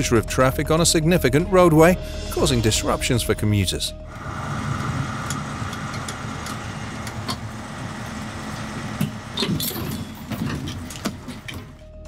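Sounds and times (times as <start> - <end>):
vehicle engine running: 4.1 - 12.0.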